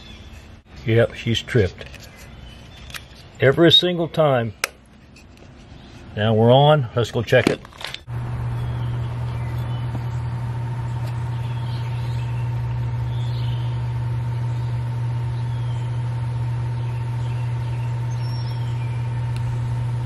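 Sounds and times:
sump pump humming: 7.7 - 20.0
faint bird chirps: 16.6 - 19.1.

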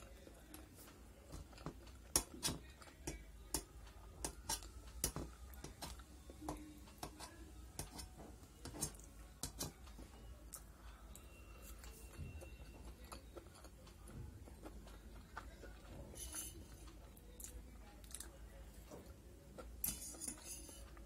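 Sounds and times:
fork clinking on metal plate: 19.8 - 20.9.

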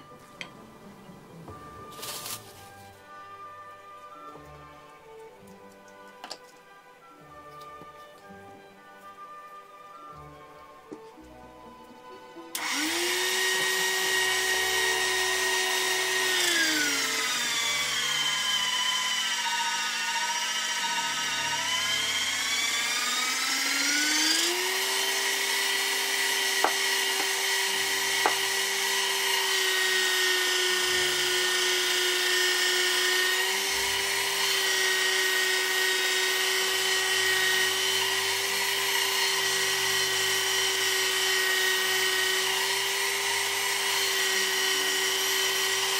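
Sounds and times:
electric motor humming: 12.0 - 45.9.

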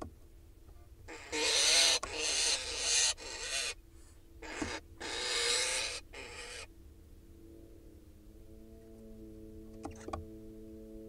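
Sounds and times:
owl hissing: 1.1 - 3.8, 4.4 - 6.7.

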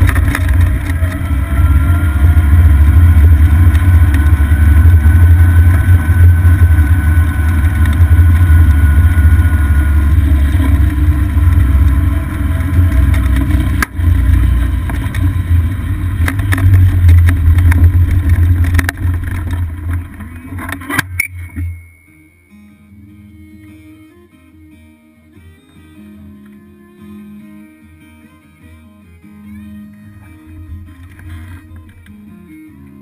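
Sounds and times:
golf cart running rumble: 0.0 - 21.7, 29.8 - 32.3
rattles and knocks from bumps: 0.0 - 21.7.

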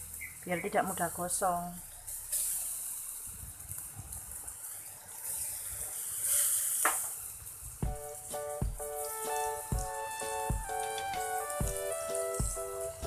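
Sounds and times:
banana sizzling in a frying pan: 0.0 - 13.0
background music: 7.8 - 13.0.

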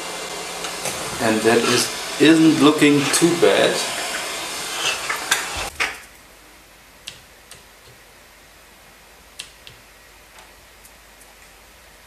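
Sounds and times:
hot air blower hissing: 0.0 - 5.7.

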